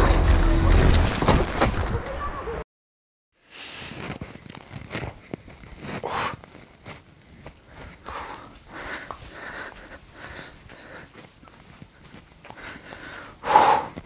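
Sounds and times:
person rustling and shuffling: 3.5s - 14.0s.

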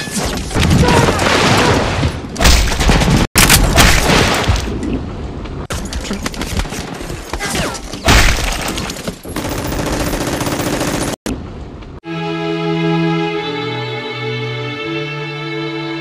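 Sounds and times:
music: 12.0s - 16.0s.

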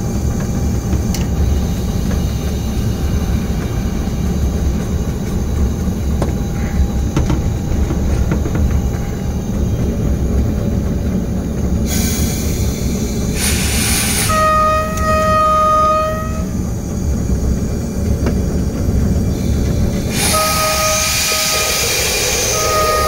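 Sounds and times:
diesel locomotive rumbling: 0.0s - 23.0s
locomotive horn: 14.1s - 16.6s, 20.2s - 23.0s.

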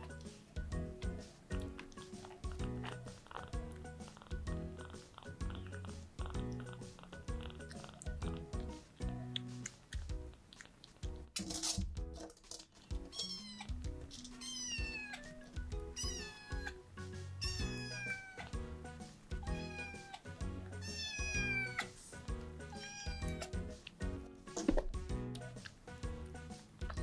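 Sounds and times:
background music: 0.0s - 27.0s
kitten meowing: 13.1s - 13.8s, 14.4s - 16.8s, 17.4s - 18.6s, 19.4s - 21.9s, 22.7s - 23.5s.

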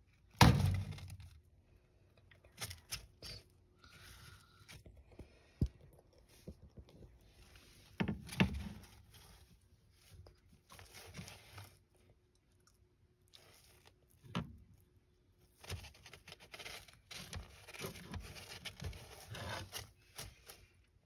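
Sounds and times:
lizard crunching on worm: 9.9s - 14.6s.

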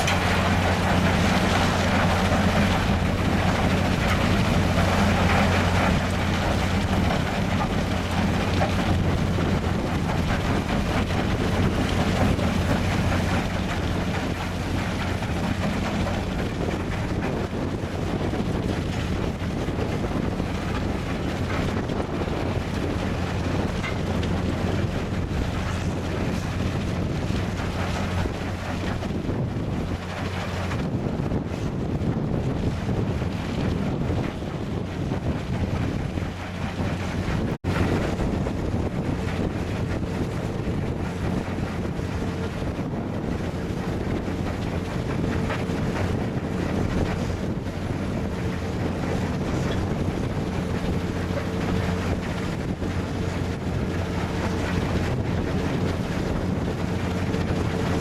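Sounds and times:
belt feeder working: 0.0s - 29.3s
diesel engine running: 0.0s - 58.0s
wind buffeting microphone: 0.0s - 58.0s.

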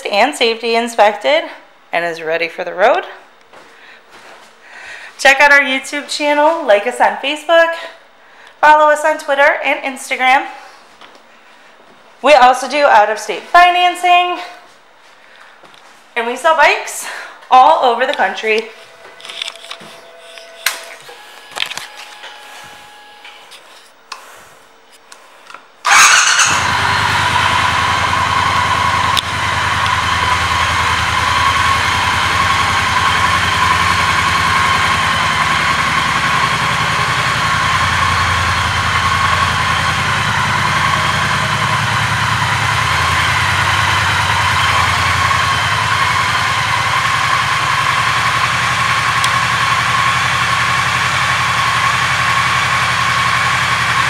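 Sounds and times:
motorcycle engine starting and idling: 25.8s - 54.0s.

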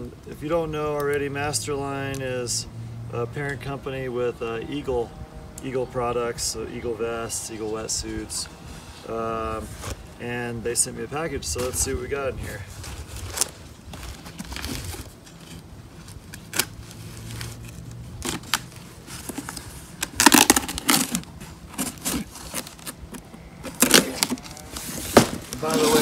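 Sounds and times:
cardboard scraping and rustling: 8.8s - 10.1s, 11.5s - 26.0s.

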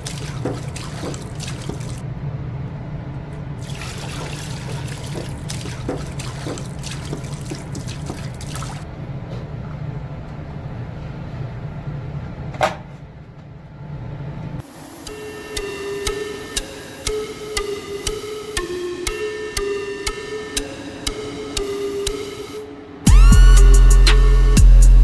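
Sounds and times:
liquid trickling into cup: 3.6s - 8.8s.

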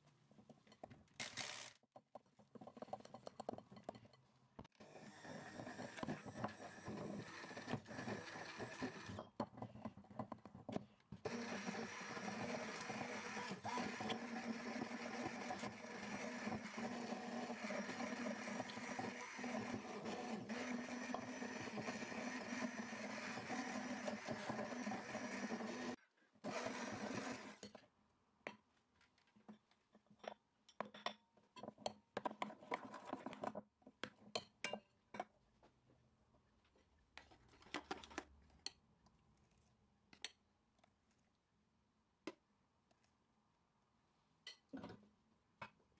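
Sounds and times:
stick blender motor running: 1.2s - 1.8s, 4.8s - 9.2s, 11.2s - 27.6s.

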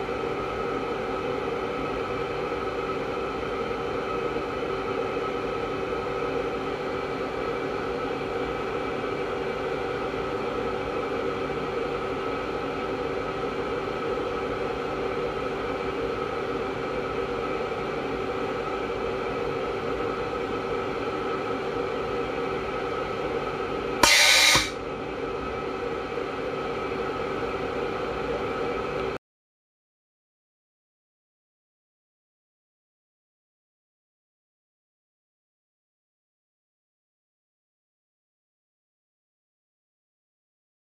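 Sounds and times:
mechanical hum with held tones: 0.0s - 29.2s.

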